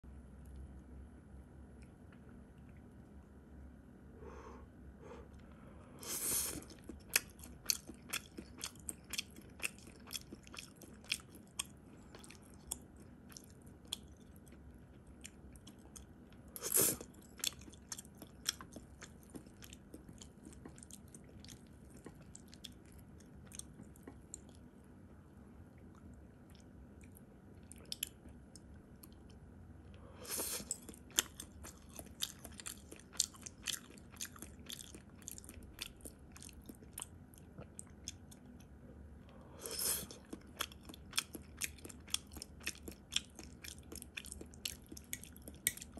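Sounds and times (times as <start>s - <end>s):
person chewing food: 6.0s - 24.8s, 25.7s - 45.9s.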